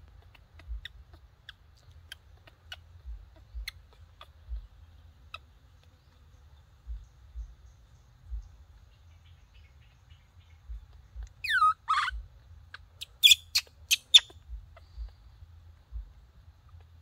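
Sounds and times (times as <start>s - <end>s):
high-pitched animal cry: 11.4s - 12.3s, 13.1s - 14.4s.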